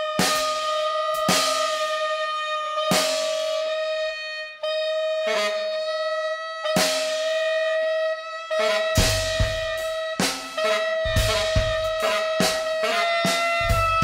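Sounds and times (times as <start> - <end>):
drum and cymbal hits: 0.0 - 2.2, 2.8 - 3.8, 6.8 - 7.3, 8.9 - 14.0.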